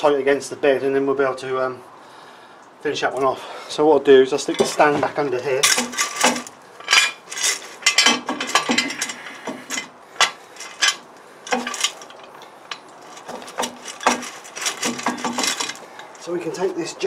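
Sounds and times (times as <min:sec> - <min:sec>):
metal knocks and clicks: 0:04.5 - 0:15.8.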